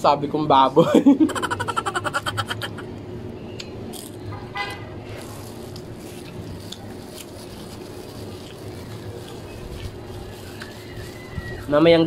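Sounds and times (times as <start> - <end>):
low background hum: 0.0 - 12.0
vehicle horn tooting: 4.3 - 5.0
plastic bag crinkling: 5.1 - 12.0.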